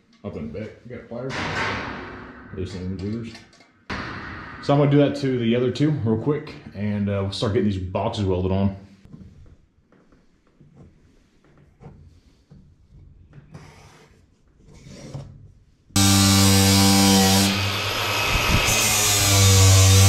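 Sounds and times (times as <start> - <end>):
faint handling knocks and rustles: 9.1 - 15.8.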